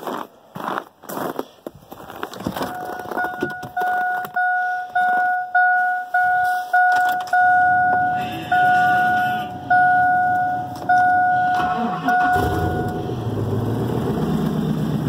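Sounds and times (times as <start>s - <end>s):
dashboard warning chime dinging: 2.6s - 13.2s.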